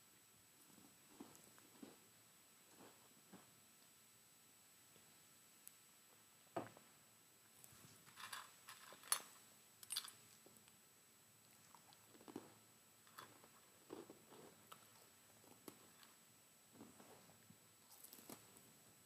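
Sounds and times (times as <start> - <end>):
person chewing and crunching: 11.7 - 16.0.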